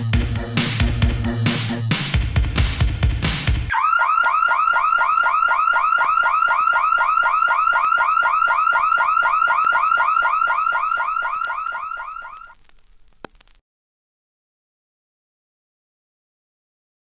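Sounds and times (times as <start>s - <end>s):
rising synthesizer chirps: 3.7s - 12.6s.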